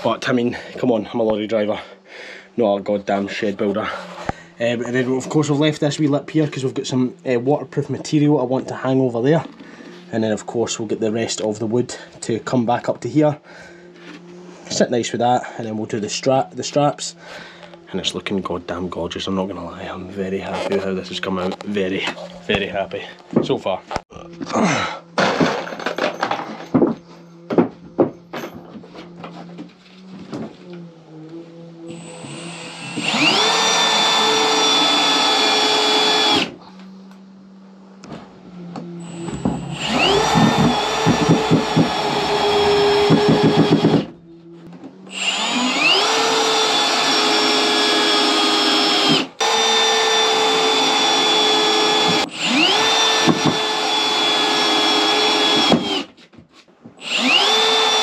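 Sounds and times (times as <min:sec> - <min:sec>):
cordless drill whining: 0:31.8 - 0:36.6, 0:38.8 - 0:44.1, 0:45.1 - 0:56.1, 0:57.0 - 0:58.0.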